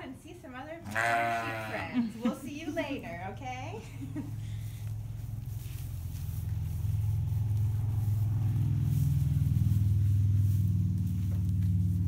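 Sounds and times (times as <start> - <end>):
large fan humming: 0.0 - 12.0.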